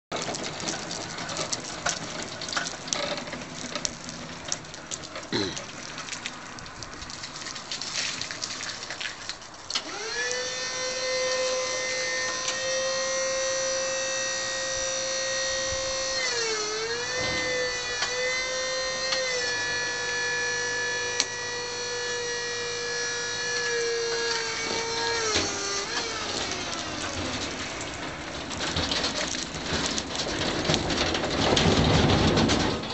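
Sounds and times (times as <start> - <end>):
truck clattering and rattling: 0.1 - 9.8, 17.0 - 19.6, 24.8 - 32.9
electric motor whine: 9.8 - 27.8.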